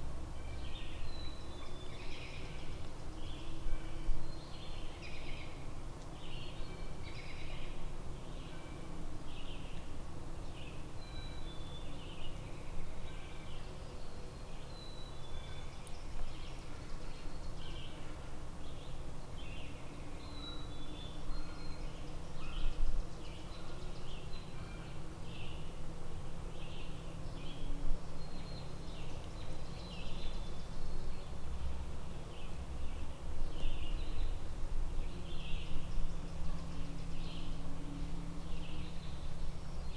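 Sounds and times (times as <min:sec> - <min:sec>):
songbirds chirping: 0:00.0 - 0:39.9.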